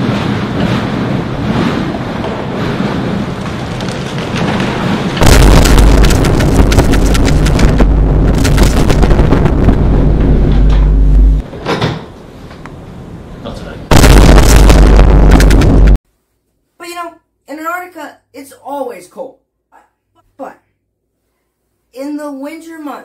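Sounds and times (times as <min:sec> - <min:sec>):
blizzard wind buffeting microphone: 0:00.0 - 0:11.5, 0:13.9 - 0:16.0.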